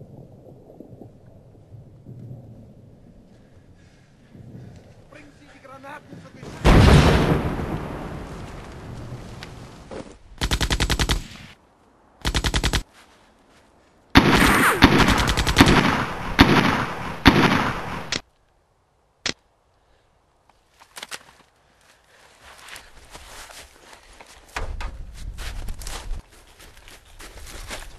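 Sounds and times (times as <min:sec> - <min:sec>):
explosion rumble: 0:06.1 - 0:09.8
automatic gunfire: 0:10.4 - 0:11.5, 0:12.2 - 0:12.8, 0:14.2 - 0:18.2
sharp crack: 0:14.2 - 0:18.3.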